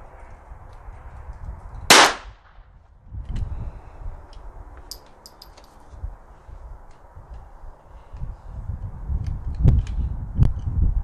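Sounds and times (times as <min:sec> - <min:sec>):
rifle shot crack: 0:01.9 - 0:02.6.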